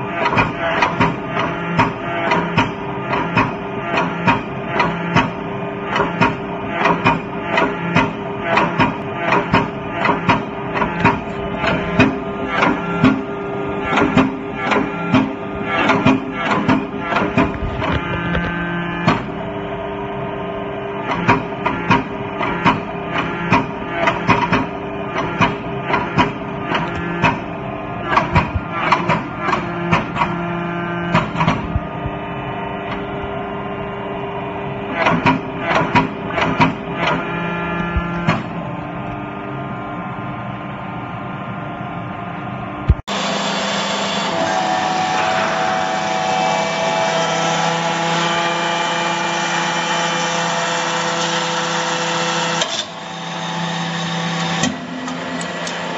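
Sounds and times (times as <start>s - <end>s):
hydraulic press motor humming: 0.0s - 55.9s
sharp metallic knocks and clanks: 0.2s - 13.3s.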